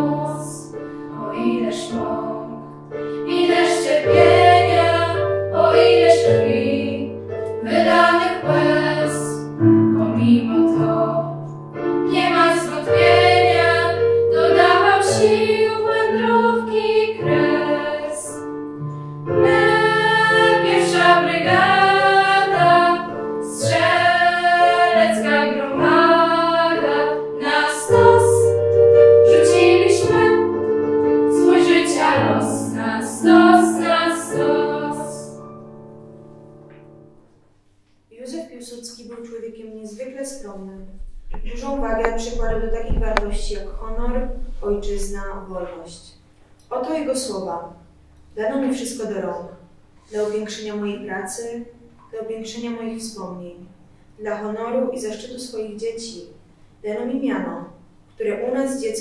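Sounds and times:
girls' choir singing: 0.0s - 18.4s, 19.4s - 35.4s.

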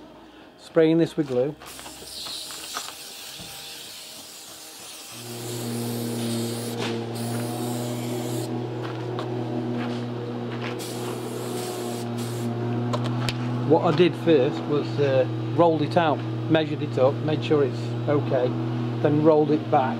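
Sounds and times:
steady motor hum: 0.0s - 19.9s
aerosol spray can hissing: 1.7s - 8.5s, 10.8s - 12.5s.

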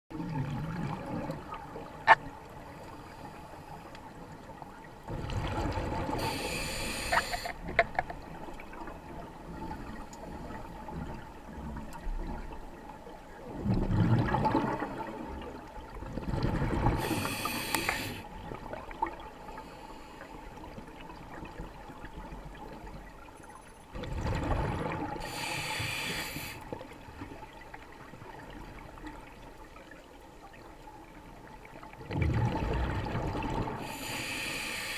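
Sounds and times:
exhaled bubbles rumbling: 0.1s - 2.2s, 5.0s - 6.4s, 7.7s - 17.3s, 24.0s - 25.4s, 31.9s - 34.0s
air hissing through regulator: 6.2s - 7.6s, 17.0s - 18.2s, 25.2s - 26.6s, 33.8s - 34.9s.

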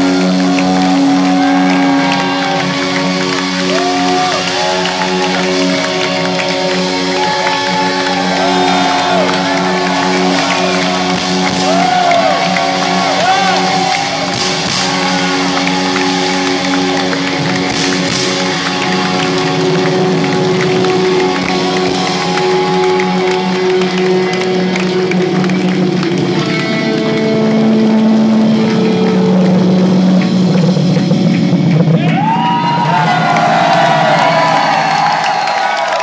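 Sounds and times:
audience clapping: 0.0s - 36.0s
rock band sustained chords: 0.0s - 36.0s
audience shouting: 3.6s - 17.2s.

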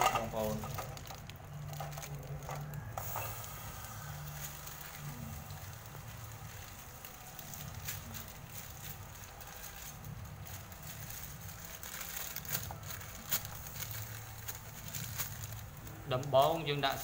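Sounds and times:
low steady hum: 0.0s - 17.0s
paste sizzling in a hot pan: 3.0s - 7.3s.

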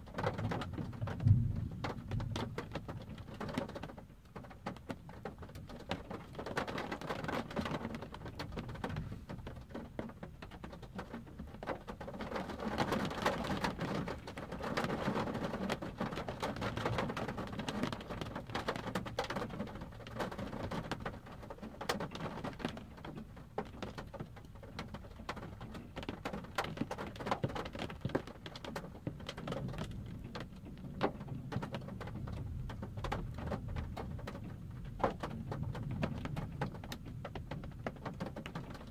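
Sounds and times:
rain pattering on car roof: 0.0s - 38.9s
low thunder rumbles: 1.0s - 3.2s.

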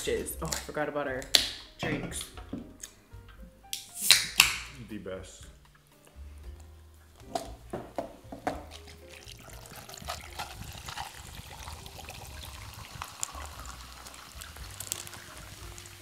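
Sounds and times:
soda fizzing over ice: 8.7s - 16.0s.

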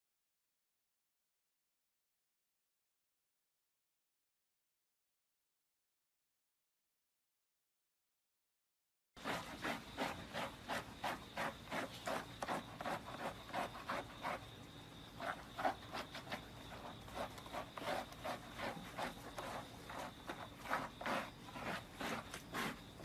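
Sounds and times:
brush scrubbing wet dog fur: 9.2s - 23.0s.

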